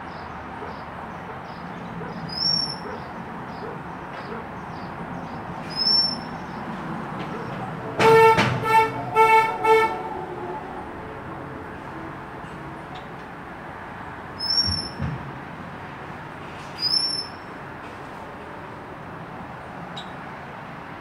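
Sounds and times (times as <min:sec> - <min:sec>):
short loud horn toots: 0:07.9 - 0:11.9.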